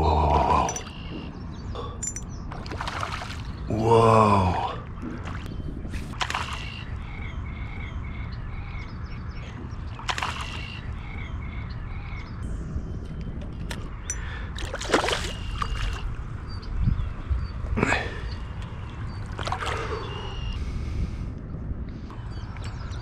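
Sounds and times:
bird chirping: 0.5s - 2.6s, 6.6s - 14.3s
water splashes: 2.1s - 3.7s, 4.4s - 6.9s, 9.8s - 10.8s, 14.2s - 16.2s, 19.2s - 20.4s
water sloshing around a kayak: 2.5s - 3.7s, 14.6s - 16.1s.

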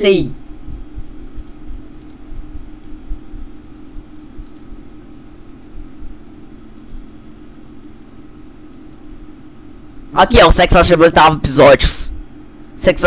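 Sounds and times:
low hum: 0.0s - 13.0s
faint short clicks: 1.3s - 2.2s, 4.4s - 4.7s, 6.7s - 7.0s.

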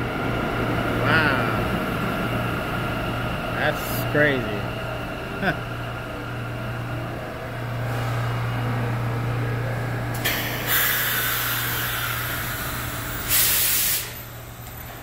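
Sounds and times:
compressed air hissing: 10.2s - 14.2s
loud air burst: 10.2s - 14.2s.

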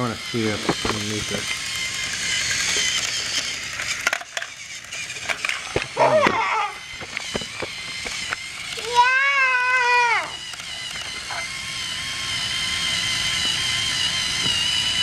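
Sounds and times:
plastic toy track pieces clattering: 0.0s - 11.2s.

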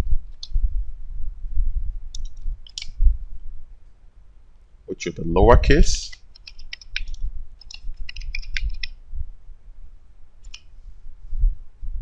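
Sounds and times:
low electrical hum: 0.0s - 12.0s
keyboard keystrokes clicking: 6.4s - 8.9s.

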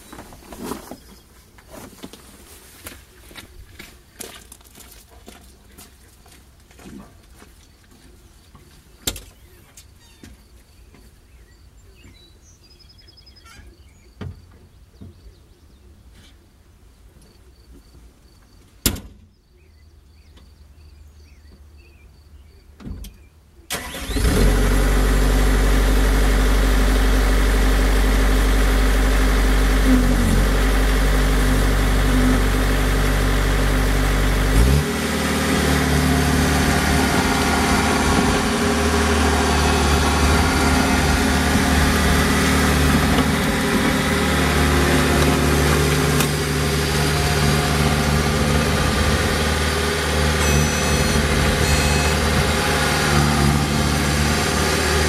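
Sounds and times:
diesel engine starting and idling: 23.7s - 55.0s.

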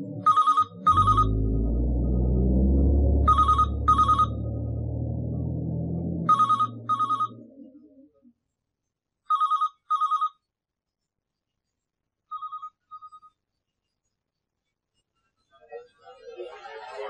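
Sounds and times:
low rumble: 0.0s - 8.2s
telephone ringing: 0.2s - 1.3s, 9.3s - 10.4s.

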